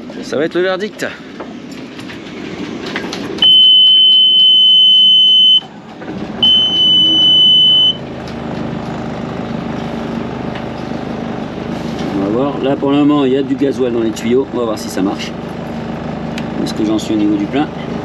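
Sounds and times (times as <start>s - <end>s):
diesel engine starting and idling: 0.0s - 18.0s
warning buzzer: 3.4s - 5.7s, 6.4s - 8.0s.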